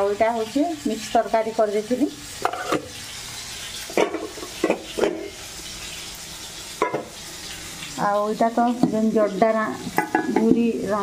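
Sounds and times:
metal dishes clinking: 0:02.4 - 0:02.9, 0:06.8 - 0:07.1, 0:09.9 - 0:10.6.

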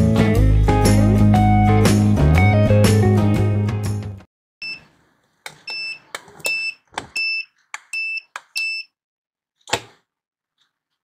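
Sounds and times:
keypad beeps: 0:05.7 - 0:08.9.

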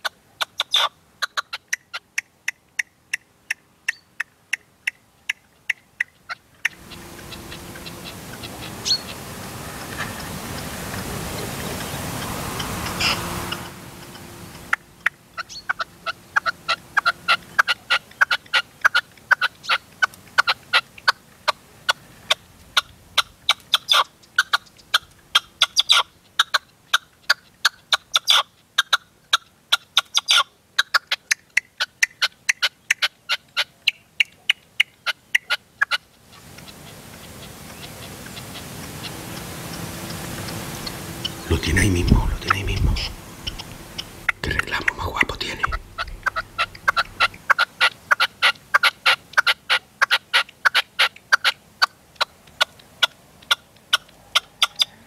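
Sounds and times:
partridge calling: 0:00.4 - 0:09.2, 0:11.3 - 0:19.8, 0:36.6 - 0:51.5.

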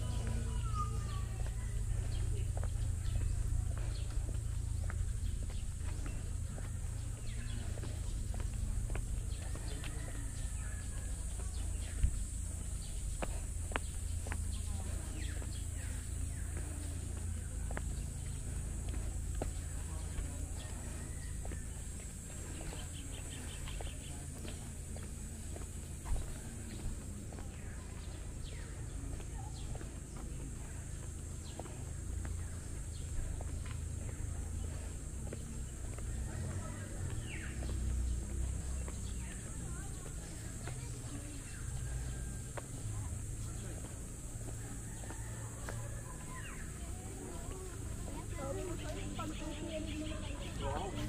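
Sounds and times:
low rumble: 0:00.0 - 0:29.1
birds chirping: 0:00.0 - 0:51.0.

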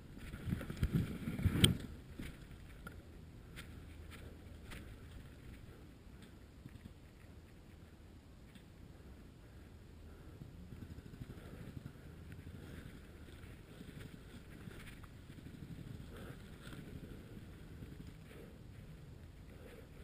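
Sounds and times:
twigs crackling: 0:00.1 - 0:07.8, 0:12.3 - 0:20.0.

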